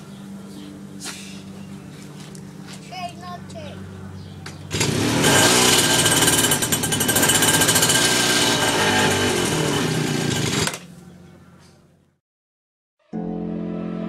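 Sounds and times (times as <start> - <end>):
small engine revving: 4.2 - 10.9.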